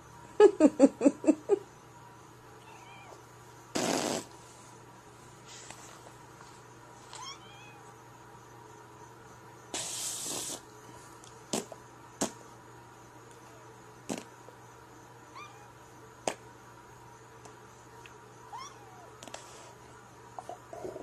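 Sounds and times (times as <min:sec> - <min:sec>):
kitten hissing: 0:03.7 - 0:04.3, 0:09.7 - 0:10.7.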